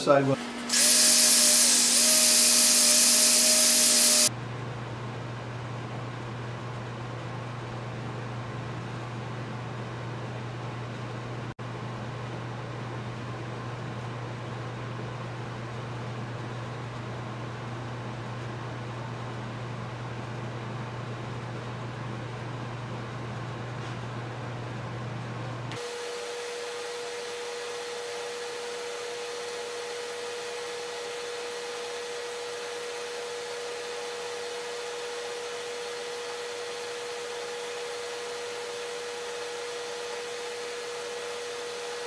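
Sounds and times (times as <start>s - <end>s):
machine humming: 0.0s - 4.3s.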